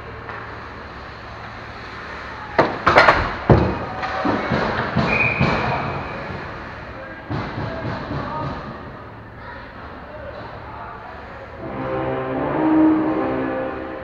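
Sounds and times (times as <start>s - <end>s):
hockey sticks and puck knocking: 2.6s - 6.4s.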